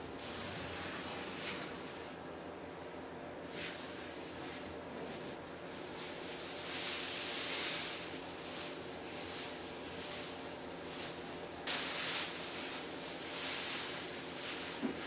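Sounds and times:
plastic film rustling: 0.2 - 2.5, 5.3 - 15.0
loud plastic crackle: 5.8 - 15.0.

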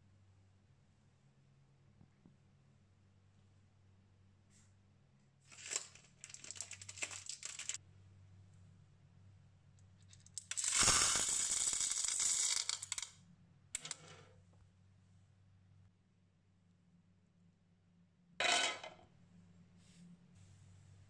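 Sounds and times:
popcorn kernels pouring into metal: 5.6 - 7.8, 10.4 - 13.1.

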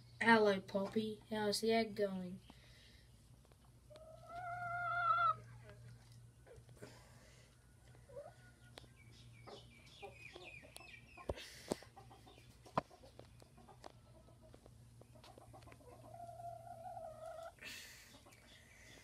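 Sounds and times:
hen clucking quietly: 3.9 - 6.6, 9.5 - 19.0.

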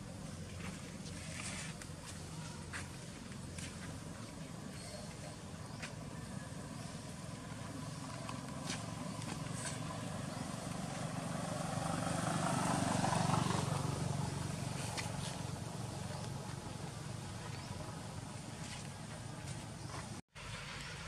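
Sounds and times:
vehicle passing: 5.2 - 21.0.

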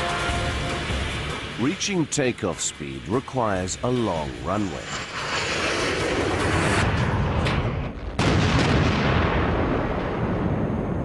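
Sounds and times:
heavy rumbling: 0.0 - 11.0
jet engine roar: 0.0 - 11.0
big guns firing: 5.4 - 11.0.

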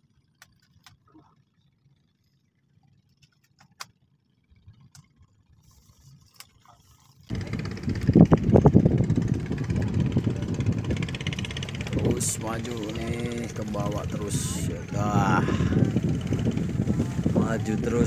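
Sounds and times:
gusty wind buffeting microphone: 7.3 - 18.0.

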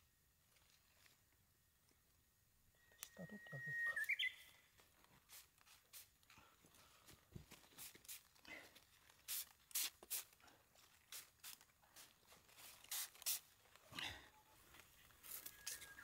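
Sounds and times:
spray bottle spurts: 5.1 - 6.3, 7.6 - 13.6, 15.2 - 16.0.

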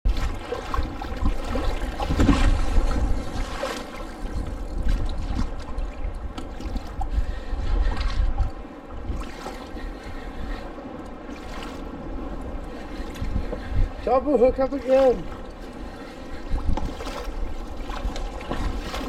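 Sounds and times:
water lapping and splashing: 0.0 - 19.0
wind buffeting microphone: 0.1 - 19.0.

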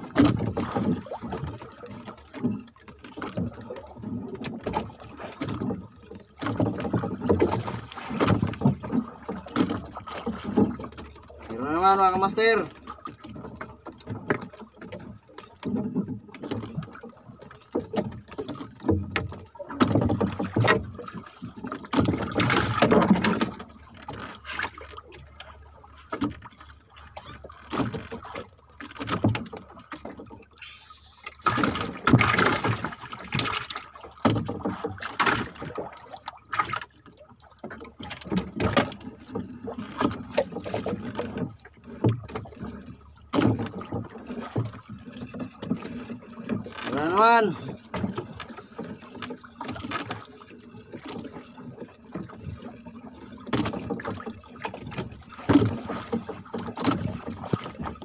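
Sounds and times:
water slapping against boat hull: 0.0 - 58.0
fishing line being hauled in: 30.5 - 32.6.

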